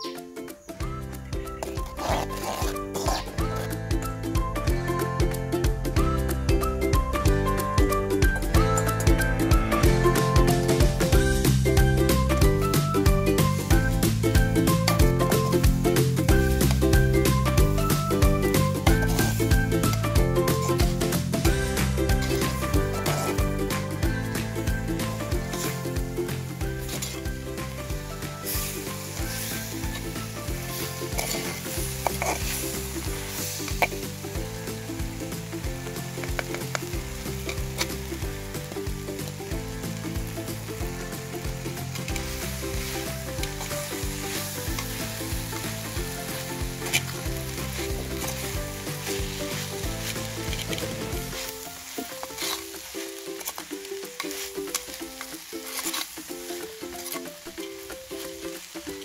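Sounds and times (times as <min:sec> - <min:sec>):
vegetables sizzling in oil: 0:00.0 - 0:05.0, 0:07.1 - 0:59.0
metal spatula stirring and scraping: 0:01.5 - 0:03.7, 0:18.5 - 0:21.1, 0:22.1 - 0:23.5, 0:25.5 - 0:25.8, 0:26.7 - 0:27.7, 0:28.4 - 0:34.1, 0:36.1 - 0:38.0, 0:41.8 - 0:59.0.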